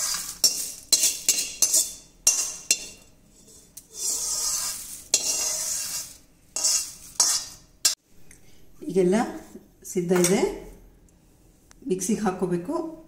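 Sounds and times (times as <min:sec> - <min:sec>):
metal spatula scraping steel pan: 0:00.0 - 0:08.0.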